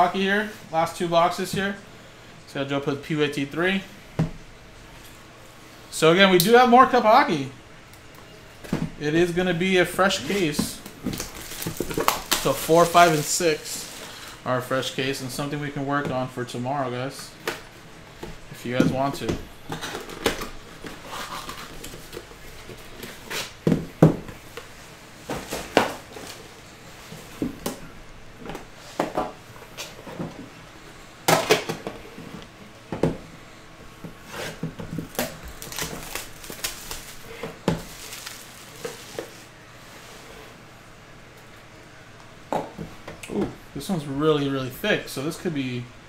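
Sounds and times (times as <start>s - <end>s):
cardboard rustling and scraping: 9.2s - 14.4s, 18.6s - 27.6s, 34.0s - 40.6s.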